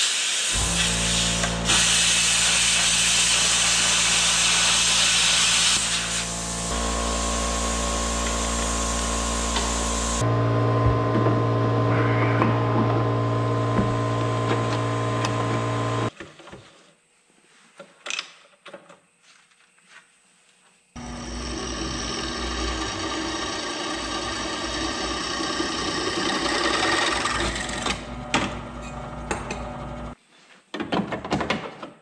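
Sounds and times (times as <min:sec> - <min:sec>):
drill press drilling steel: 0:00.6 - 0:10.2, 0:21.0 - 0:30.2
machine hum: 0:00.6 - 0:16.1, 0:21.0 - 0:30.2.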